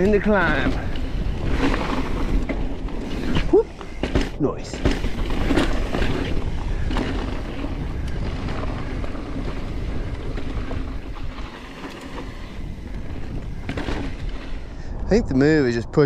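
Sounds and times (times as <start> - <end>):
bike tyres on dirt trail: 0.0 - 15.2
wind rumbling on microphone: 0.0 - 16.0
bike knocks: 3.8 - 6.3.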